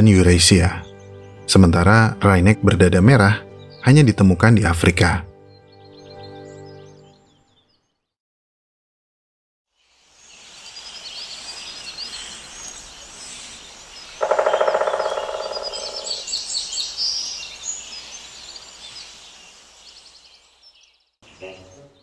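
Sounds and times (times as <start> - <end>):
small birds chirping: 0.0 - 8.2, 9.7 - 22.0
woodpecker drumming on tree: 14.0 - 16.5.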